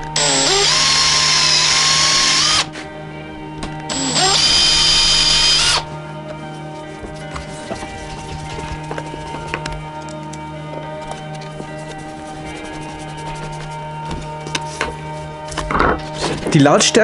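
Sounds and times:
cordless drill whining: 0.0 - 2.7, 3.9 - 5.9.

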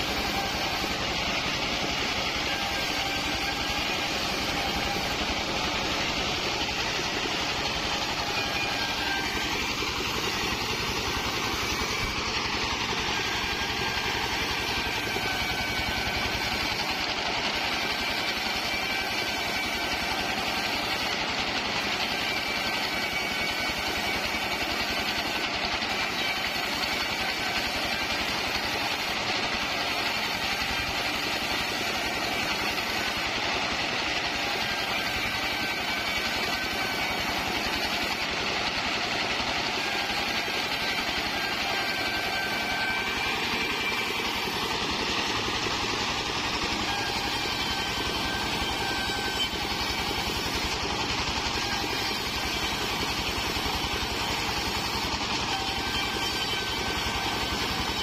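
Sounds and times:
band sawmill engine running: 0.0 - 58.0.

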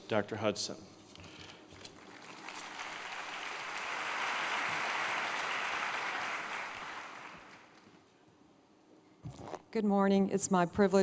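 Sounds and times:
audience applauding: 1.9 - 7.8.

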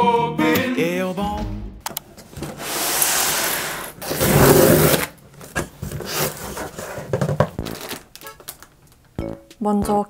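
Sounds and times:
cardboard rustling: 2.4 - 8.7
packing tape ripping: 2.7 - 5.2, 7.6 - 9.0.

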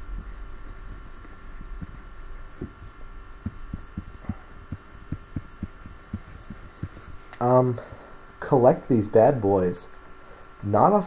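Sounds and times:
electrical hum: 0.0 - 11.0
stylus tapping drawing tablet: 2.6 - 7.1.

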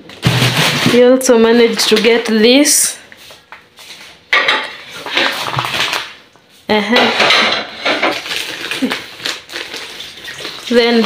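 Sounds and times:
dishes and cutlery clattering: 4.3 - 5.7, 6.9 - 8.2.

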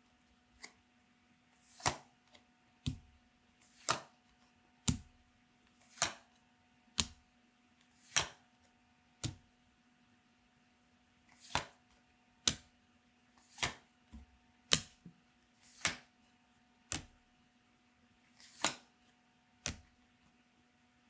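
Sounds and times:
cards sliding against cards: 1.6 - 2.1, 3.6 - 4.1, 5.8 - 6.3, 7.9 - 8.4, 11.3 - 11.8, 13.4 - 13.8, 15.6 - 16.1, 18.3 - 18.9.

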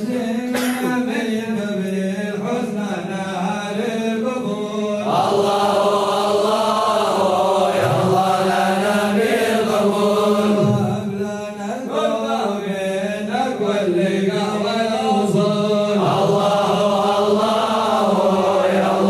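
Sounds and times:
crowd of men chanting in unison: 0.0 - 19.0.

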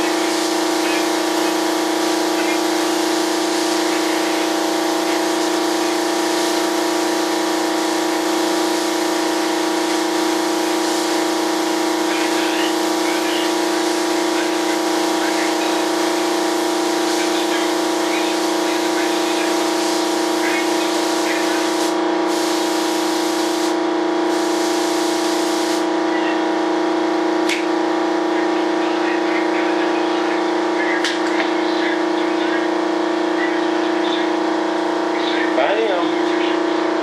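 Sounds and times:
spray gun hissing: 0.0 - 25.8
air compressor motor hum: 0.0 - 37.0.

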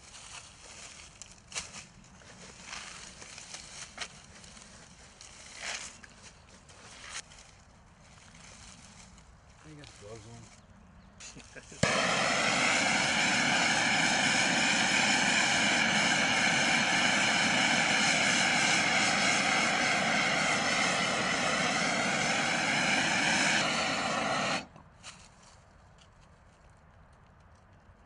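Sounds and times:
gas torch lighting pop: 11.8 - 24.7
torch flame hissing: 11.8 - 24.7.

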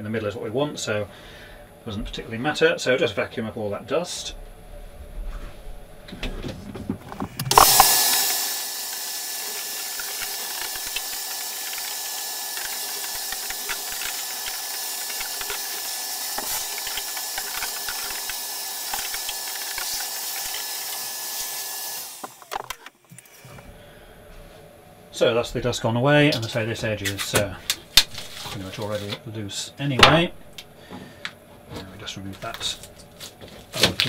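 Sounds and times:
vacuum cleaner running: 7.4 - 22.7
dust ticking up hose: 7.4 - 23.3.

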